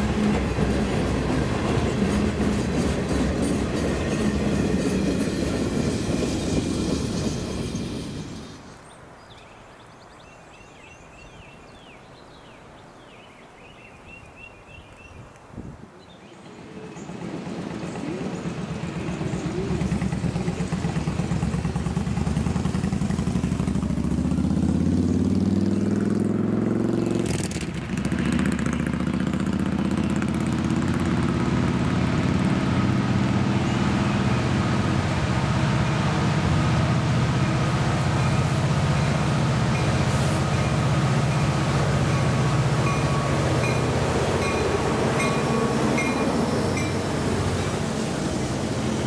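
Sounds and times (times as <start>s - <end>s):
diesel locomotive engine throbbing: 0.0s - 8.5s, 17.0s - 25.9s, 27.4s - 49.0s
engine sound rising in pitch: 17.2s - 37.8s.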